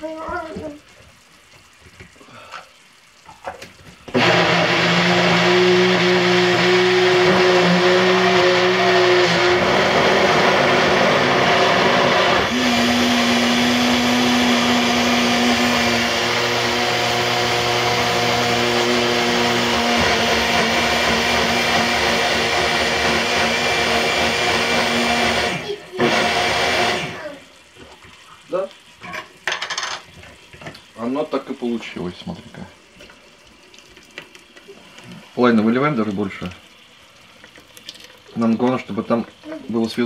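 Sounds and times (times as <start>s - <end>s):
small blender running: 4.1s - 27.6s.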